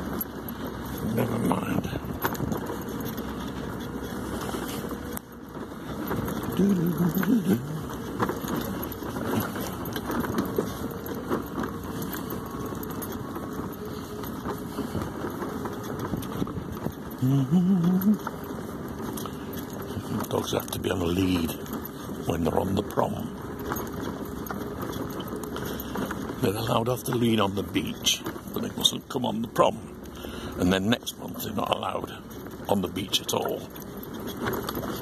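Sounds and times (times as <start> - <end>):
mobility scooter driving over paving: 0.0 - 35.0
scooter body rattling: 0.0 - 35.0.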